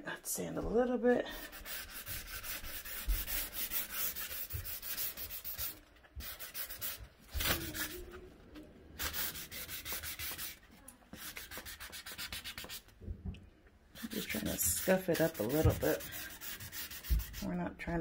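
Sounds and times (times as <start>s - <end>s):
sanding sponge rubbing a surface: 1.3s - 8.1s, 9.0s - 10.6s, 11.2s - 12.8s, 14.0s - 17.5s.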